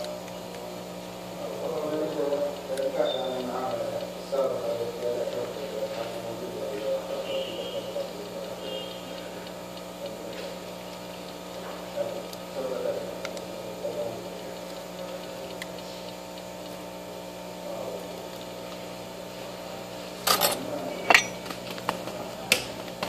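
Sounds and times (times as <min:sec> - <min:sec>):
steady hum: 0:00.0 - 0:23.0
device clattering on bench: 0:20.3 - 0:21.4.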